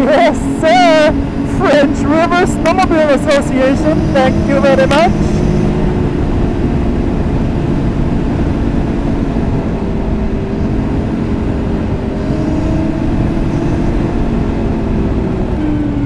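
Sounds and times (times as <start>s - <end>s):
snowmobile engine running: 0.0s - 16.0s
track rumble and wind noise: 0.0s - 16.0s.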